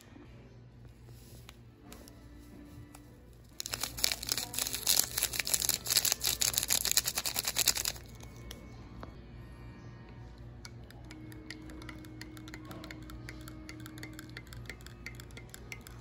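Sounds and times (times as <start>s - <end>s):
foil sachet crinkling: 3.5s - 8.2s.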